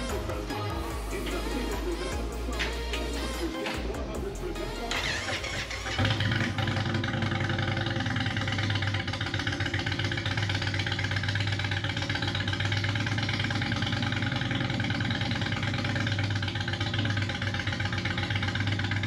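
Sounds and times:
music playing: 0.0 - 6.6
motorcycle engine idling: 0.0 - 19.0.

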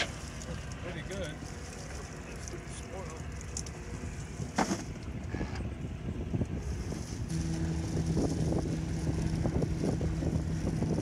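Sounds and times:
low motor hum: 0.0 - 11.0
wind buffeting microphone: 3.3 - 11.0.

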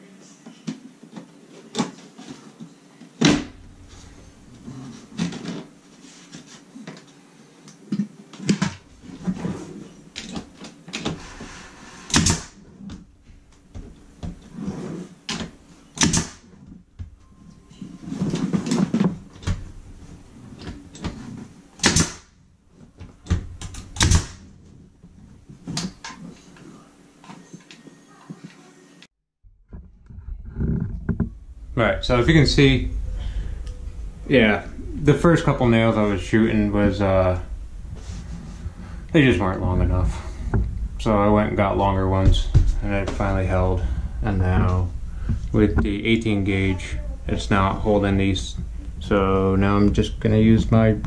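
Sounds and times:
brad nailer firing into wood: 12.1 - 12.6, 16.0 - 16.4, 21.8 - 22.3, 24.0 - 24.4.

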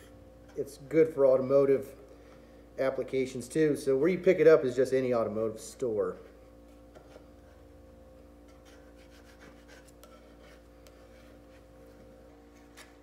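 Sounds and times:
steady low hum: 0.0 - 13.0
putty knife scraping metal: 8.4 - 11.7.

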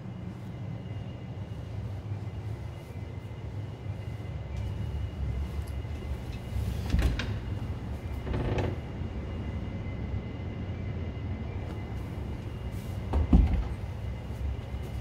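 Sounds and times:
steady low rumble: 0.0 - 15.0
door hinge creak: 6.8 - 7.4, 8.1 - 9.0.

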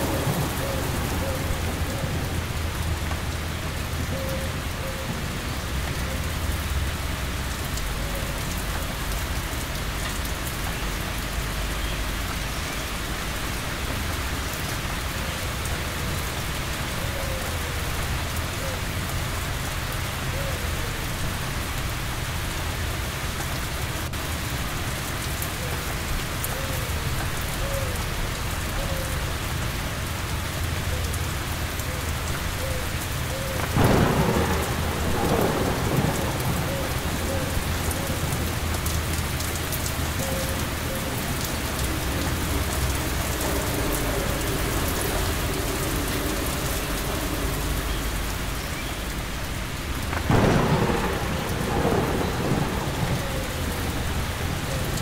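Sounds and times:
low rumble of thunder: 0.0 - 17.0, 33.2 - 55.0
heavy rain: 0.0 - 55.0
thunderclap: 33.6 - 39.6, 50.0 - 55.0.

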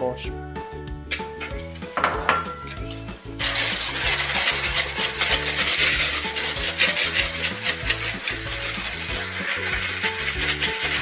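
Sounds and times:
background music: 0.0 - 11.0
electric hand mixer whirring: 2.8 - 11.0.

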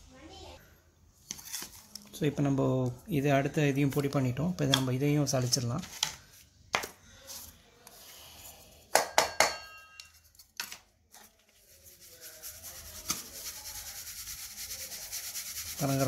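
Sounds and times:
powder sifting in sieve: 11.3 - 16.0.

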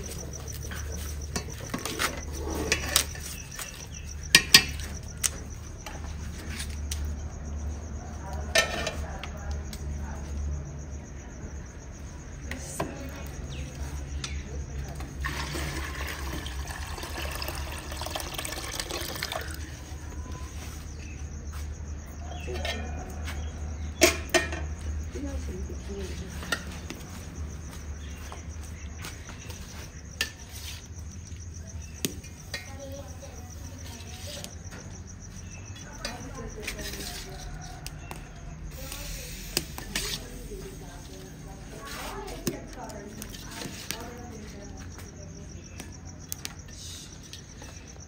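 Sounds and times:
water pouring: 15.2 - 19.7.

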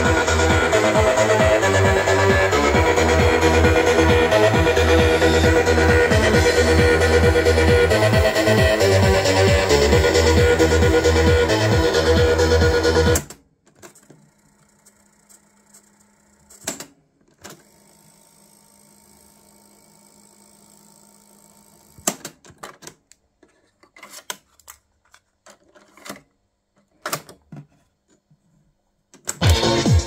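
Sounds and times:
tape rewinding whir: 0.0 - 13.2.

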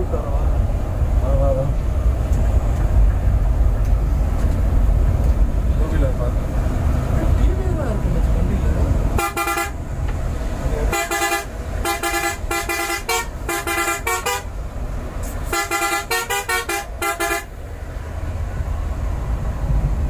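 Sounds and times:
bus rumbling: 0.0 - 20.0
bus air horn tooting: 9.2 - 9.8, 10.9 - 14.5, 15.2 - 17.5.

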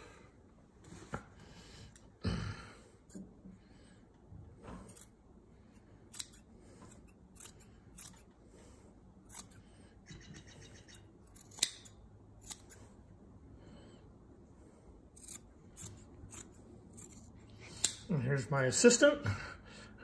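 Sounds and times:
scissors snipping fabric: 6.1 - 8.3, 9.3 - 9.6, 11.3 - 12.8, 15.2 - 18.1.

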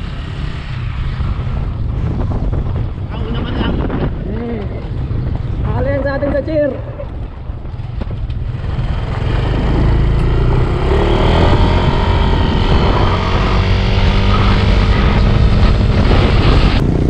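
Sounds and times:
wind rumble on microphone: 0.0 - 17.0
motorcycle engine running: 6.9 - 17.0.

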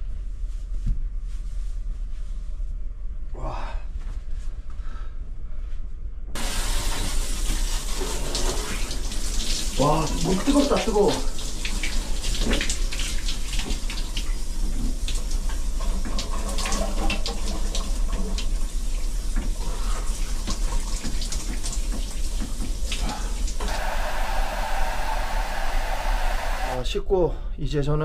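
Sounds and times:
shower water splashing: 6.4 - 26.8
hair dryer blowing: 23.6 - 26.8.

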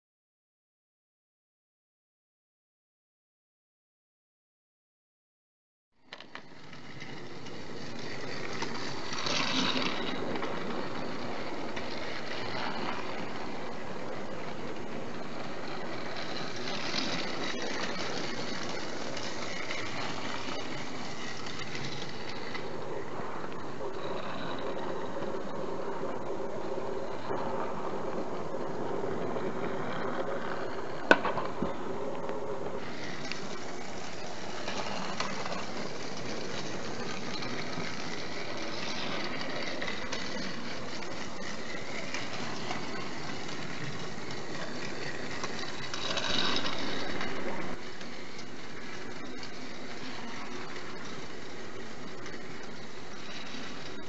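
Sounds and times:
toy train motor whirring: 6.1 - 25.6, 32.8 - 54.0.

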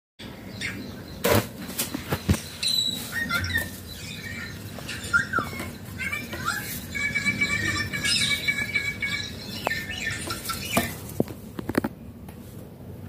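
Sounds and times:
parakeet chirps: 1.8 - 11.0.

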